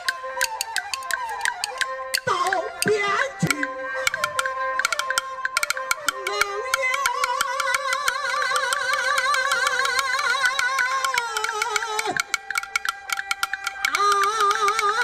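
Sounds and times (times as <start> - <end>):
percussion drums clapper and cymbals: 0.0 - 15.0
man singing opera with vibrato: 6.8 - 12.3.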